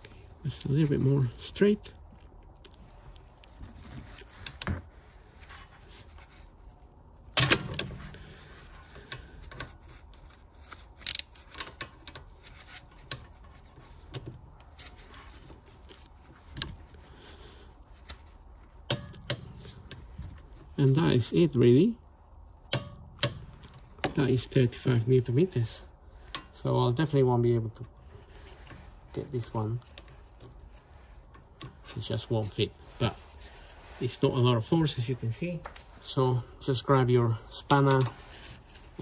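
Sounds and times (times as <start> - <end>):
sharp metal knock: 22.7 - 23.4.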